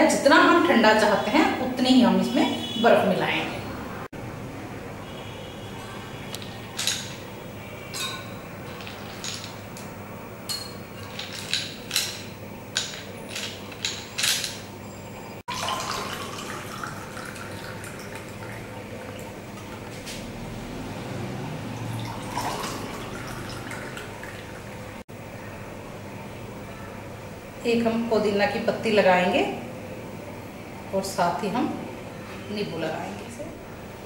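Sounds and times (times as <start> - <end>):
ice and spoon clinking on glass: 7.9 - 9.8, 10.5 - 14.6
water pouring into a glass: 15.5 - 19.9, 21.7 - 24.8.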